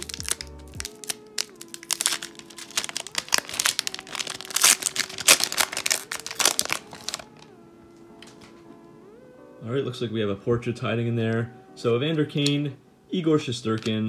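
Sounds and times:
foil wrapper crinkling torn open: 0.0s - 7.5s.

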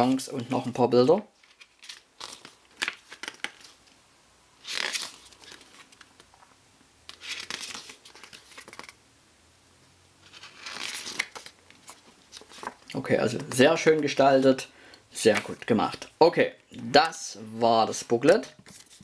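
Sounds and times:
paper pages turning: 1.4s - 3.8s, 4.6s - 6.4s, 7.1s - 9.0s, 10.2s - 14.2s, 18.3s - 19.0s.

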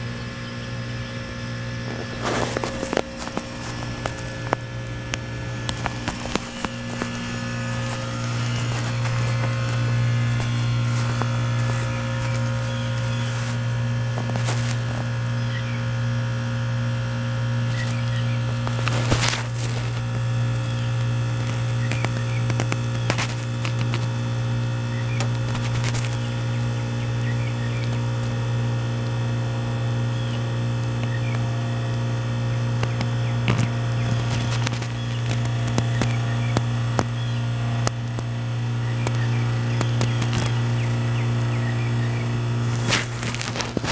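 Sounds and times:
broad rushing noise: 0.0s - 15.3s
heat pump compressor humming: 0.0s - 43.9s.

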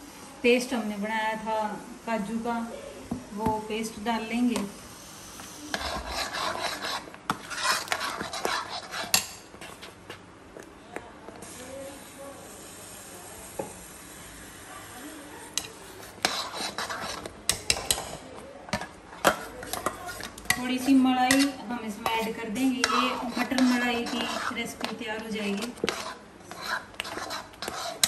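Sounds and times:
spatula scraping steel pan: 5.7s - 9.9s, 15.6s - 18.2s, 19.2s - 28.0s.

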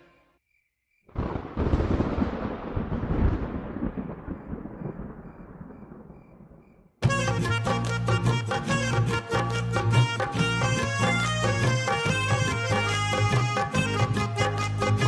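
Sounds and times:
thunderclap rumbling: 1.1s - 7.0s.

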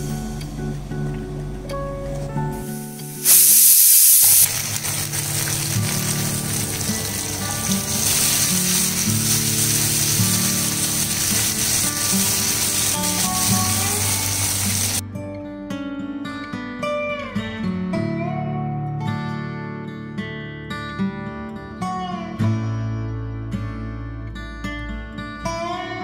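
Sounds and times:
background music: 0.0s - 3.3s, 4.6s - 19.0s
food sizzling in hot oil: 2.6s - 15.0s.

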